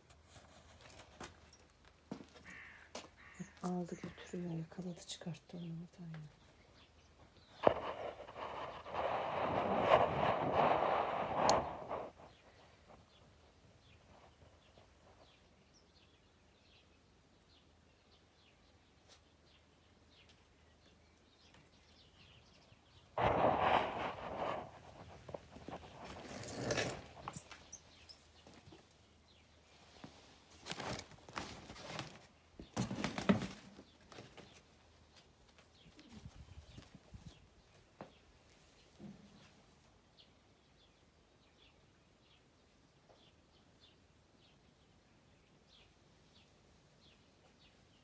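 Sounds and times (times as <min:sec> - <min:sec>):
footsteps scuffing on paving: 0:02.1 - 0:03.2.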